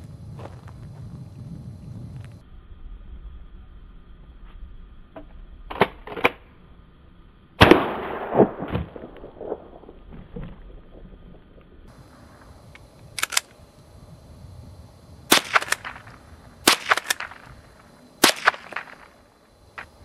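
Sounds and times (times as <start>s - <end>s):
rifle shots: 7.6s - 9.9s, 15.3s - 17.5s, 18.2s - 19.2s.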